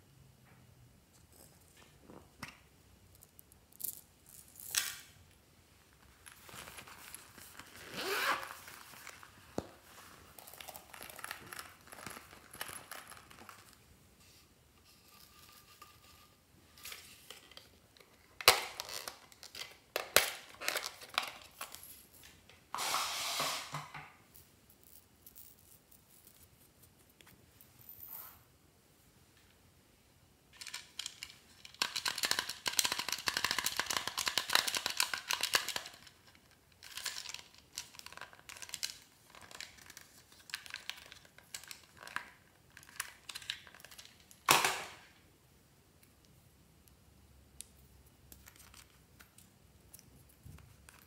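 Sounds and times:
plastic packets rustling: 0:06.0 - 0:13.8
zipper on fabric pouch: 0:07.7 - 0:08.7.

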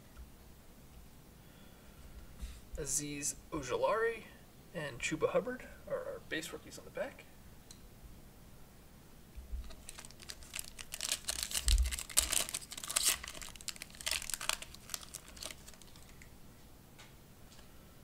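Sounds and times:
foil pack tearing and crinkling: 0:09.6 - 0:16.2.

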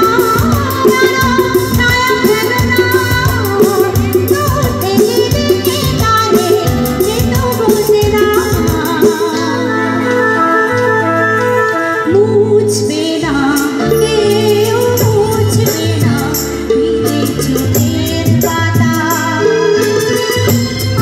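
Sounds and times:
live band music: 0:00.0 - 0:21.0
woman singing into a microphone: 0:00.0 - 0:21.0.

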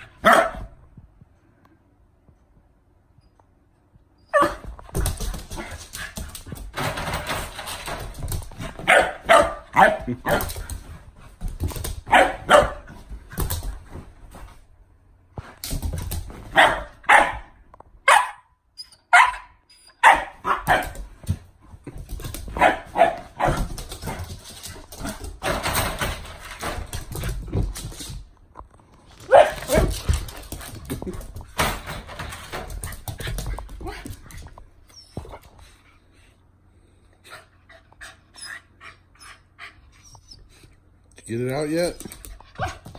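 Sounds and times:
puppy barking and yipping: 0:00.2 - 0:00.7, 0:12.1 - 0:12.8, 0:16.6 - 0:17.5, 0:18.1 - 0:21.0
paws thudding on wooden floor: 0:20.5 - 0:28.4, 0:29.1 - 0:35.8.

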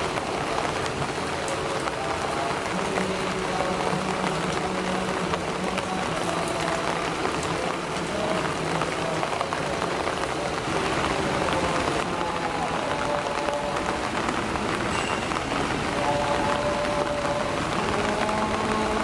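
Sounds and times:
rain falling on leaves: 0:00.0 - 0:19.0.

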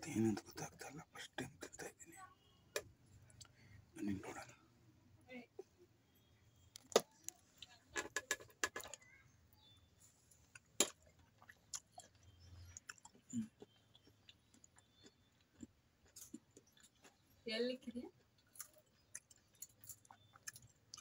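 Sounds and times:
mouth clicks and chewing: 0:02.8 - 0:03.6, 0:10.4 - 0:17.4, 0:18.1 - 0:21.0.

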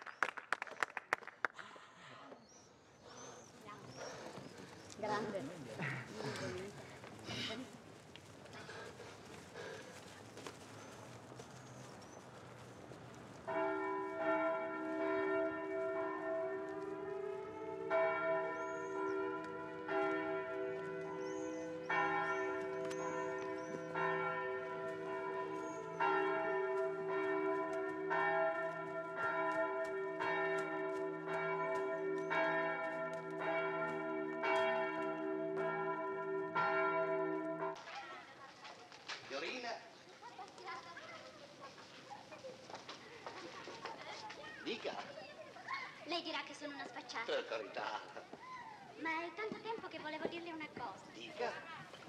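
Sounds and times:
church bell ringing: 0:13.4 - 0:37.8.

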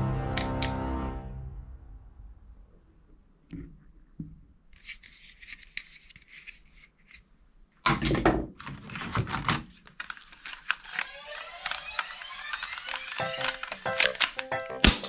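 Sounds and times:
plastic knocks and scraping: 0:07.9 - 0:11.1
plastic toy guns clattering: 0:08.6 - 0:15.0.

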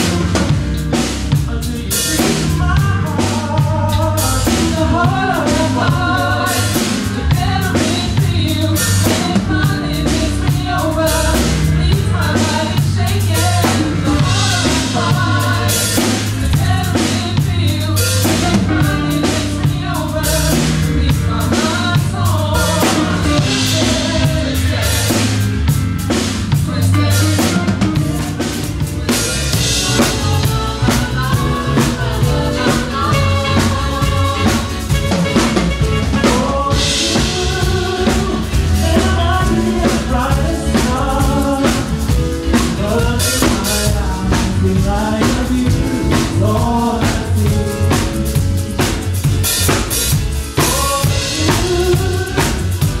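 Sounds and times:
bass guitar: 0:00.0 - 0:53.0
drum kit beat: 0:00.0 - 0:53.0
keyboards: 0:00.0 - 0:53.0
saxophone melody: 0:22.2 - 0:26.0, 0:26.8 - 0:39.8.

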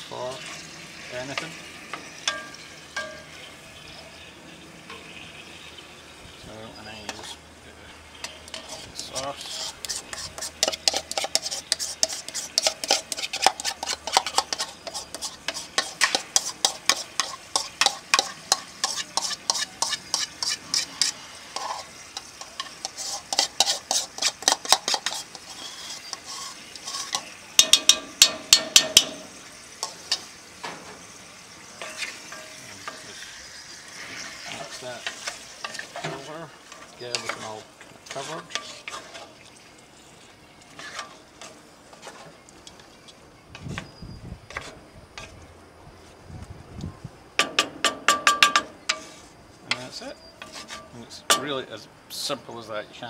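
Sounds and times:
wooden spoon stirring in pot: 0:07.0 - 0:07.5, 0:08.2 - 0:30.3, 0:31.8 - 0:45.4, 0:48.2 - 0:51.4
spoon scraping and knocking bowl: 0:08.5 - 0:29.3.

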